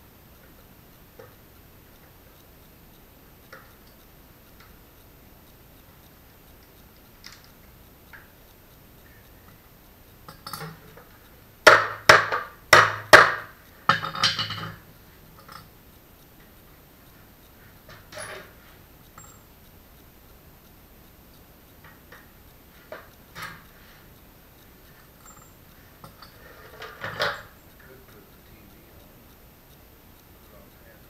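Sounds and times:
faint scattered ticks: 0.0 - 12.8, 13.4 - 31.0
sharp knocks: 11.6 - 14.8.

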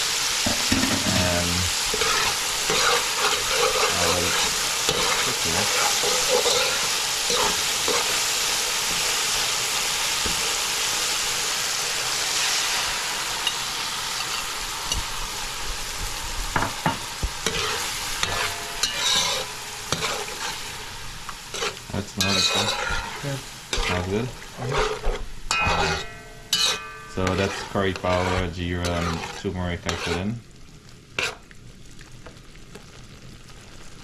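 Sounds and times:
vegetables sizzling in hot oil: 0.0 - 34.0
spatula scraping a metal pan: 1.8 - 8.2, 17.4 - 20.7, 21.5 - 30.4, 31.2 - 31.4.

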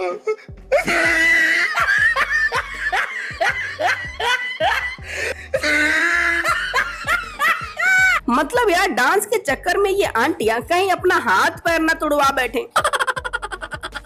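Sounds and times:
person laughing: 0.0 - 5.0, 5.6 - 8.2, 12.8 - 14.0
music with low bass: 0.5 - 8.7, 13.0 - 14.0.

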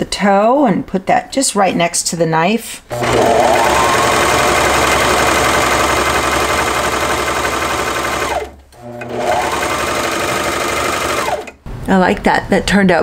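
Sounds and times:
sewing machine whining: 2.9 - 11.6.

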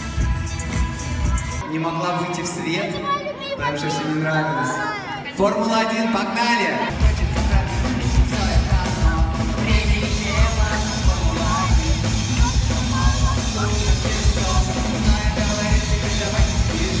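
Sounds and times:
drums pounding beat: 0.0 - 1.6, 6.9 - 17.0
singer shouting vocals: 0.6 - 17.0.

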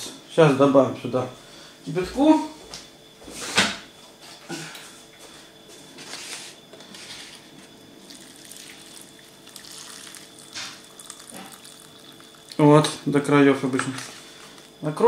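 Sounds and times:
water pouring into a cup: 8.0 - 12.9.

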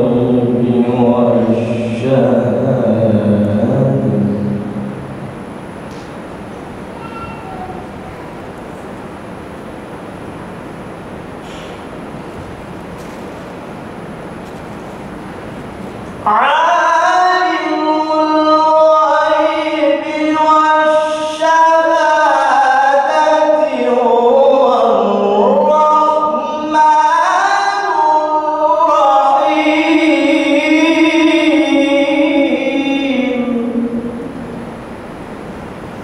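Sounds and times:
man reciting melodically: 0.0 - 5.0, 16.2 - 34.3.

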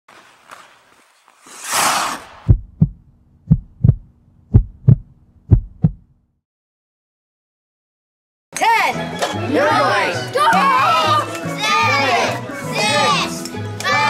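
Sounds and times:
heartbeat-style double thumps: 2.4 - 6.1
low hum: 2.4 - 6.2.

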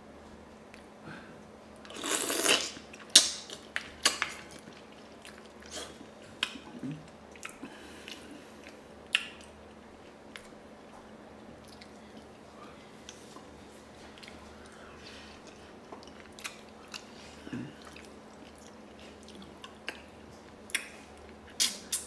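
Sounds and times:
mouth eating sound: 1.8 - 9.5.

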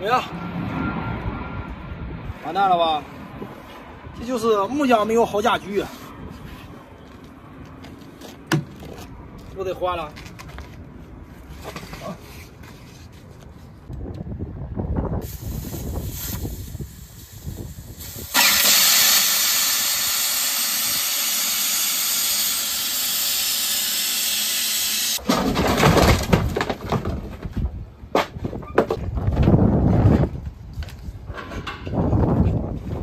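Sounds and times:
air hissing out of tire: 15.2 - 25.2
handling knocks and clatter: 25.2 - 29.6.

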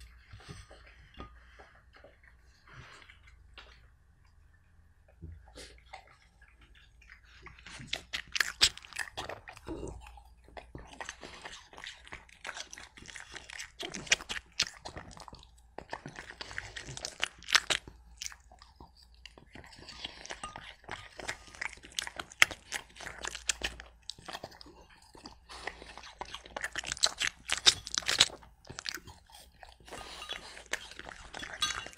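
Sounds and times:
dog crunching apple: 7.6 - 9.8, 10.8 - 31.9.

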